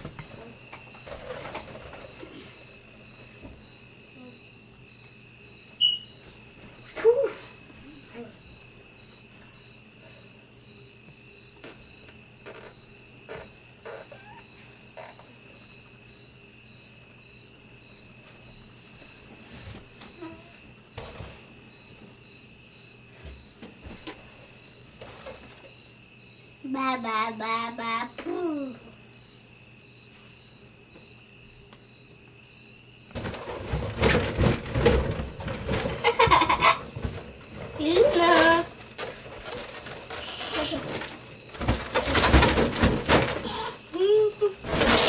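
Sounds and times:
bedding rustling and bumps: 0.0 - 3.8, 18.2 - 21.7, 33.1 - 43.8, 44.6 - 45.0
faint steady high tone: 4.1 - 4.6, 5.6 - 9.2
child's voice: 7.0 - 8.4, 26.6 - 28.9, 37.8 - 38.7, 43.5 - 44.6.

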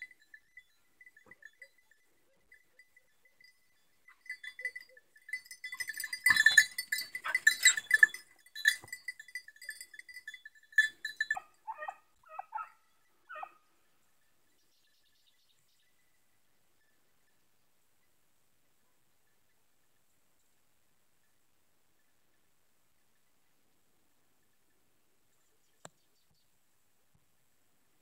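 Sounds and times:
dog collar bells jingling: 0.0 - 13.5
dogs yelping: 6.1 - 8.2, 11.3 - 13.6.

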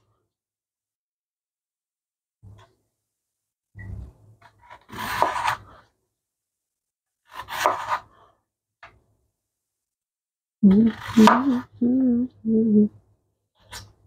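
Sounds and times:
knife slicing potato on board: 4.4 - 5.8, 7.3 - 8.2, 10.9 - 11.6.

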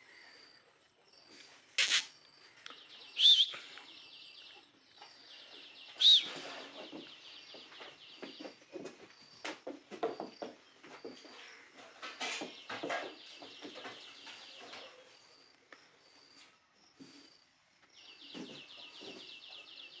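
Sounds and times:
short scratchy bird call: 1.8 - 2.1, 3.2 - 3.6, 6.0 - 6.4
sharp bird chirps: 1.8 - 4.6, 5.5 - 7.0
fast high bird twittering: 3.2 - 3.6, 6.0 - 6.4.

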